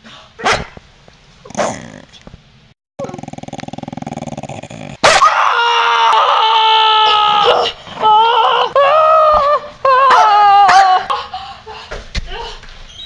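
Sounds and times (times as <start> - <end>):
person screaming shrilly: 5.1 - 9.3.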